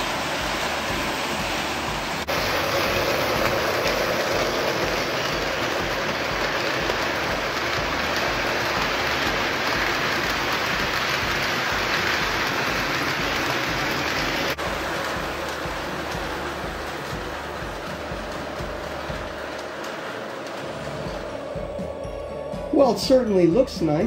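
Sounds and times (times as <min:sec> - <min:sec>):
model train wheels rumbling on rails: 0:00.0 - 0:24.0.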